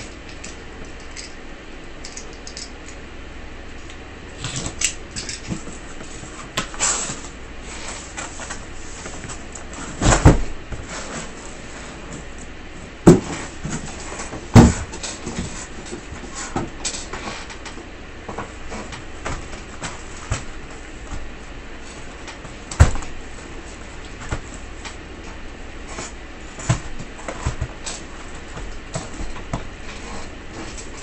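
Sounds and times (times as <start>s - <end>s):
cardboard rustling and scraping: 5.4s - 12.4s, 13.0s - 31.0s
boxes thudding down: 9.8s - 10.9s, 13.0s - 15.5s.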